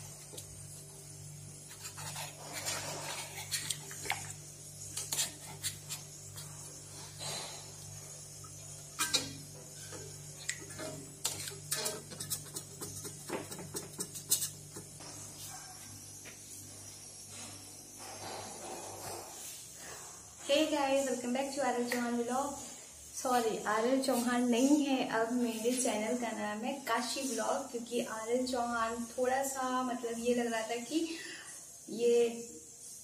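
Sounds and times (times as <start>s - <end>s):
steady low hum: 0.0s - 26.7s
utensil scraping a wok: 1.6s - 4.2s, 4.8s - 7.7s, 10.7s - 14.8s.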